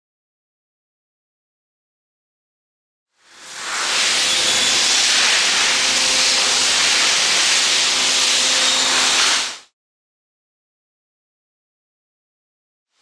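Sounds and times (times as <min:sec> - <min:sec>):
loud industrial machinery din: 0:03.3 - 0:09.7.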